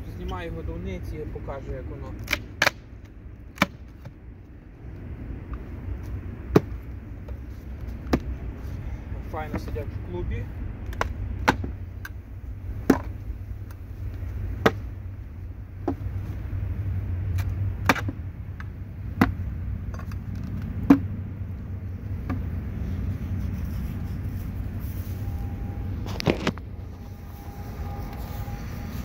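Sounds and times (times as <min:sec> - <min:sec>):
low rumble: 0:04.2 - 0:29.0.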